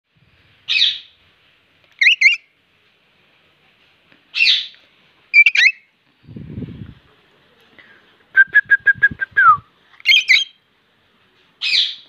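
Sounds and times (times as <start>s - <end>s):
parakeet screeching: 2.0s - 2.4s, 5.4s - 5.8s, 10.1s - 10.5s.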